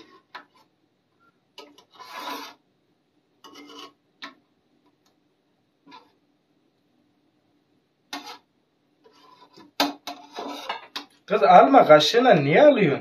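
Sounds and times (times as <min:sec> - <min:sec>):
knife and spoon scraping pan: 0:00.0 - 0:00.8, 0:01.6 - 0:02.6, 0:03.4 - 0:04.4, 0:05.8 - 0:06.2, 0:08.1 - 0:11.2.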